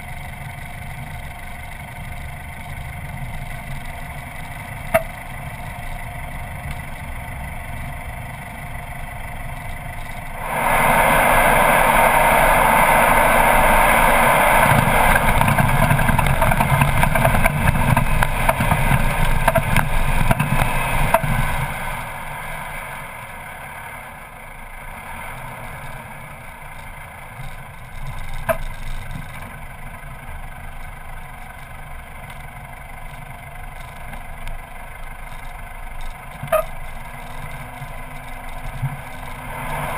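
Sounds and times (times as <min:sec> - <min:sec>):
vehicle engine: 0:00.0 - 0:39.9
wind noise: 0:09.7 - 0:22.6.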